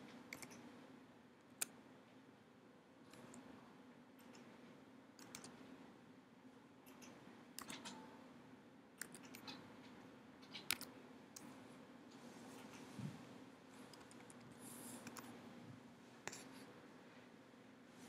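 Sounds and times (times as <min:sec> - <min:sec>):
faint steady hum: 0:00.0 - 0:18.0
mouse and keyboard clicks: 0:00.3 - 0:00.7, 0:05.2 - 0:05.6, 0:06.8 - 0:08.1, 0:09.0 - 0:11.5, 0:13.9 - 0:14.4, 0:15.0 - 0:15.4, 0:16.2 - 0:16.5.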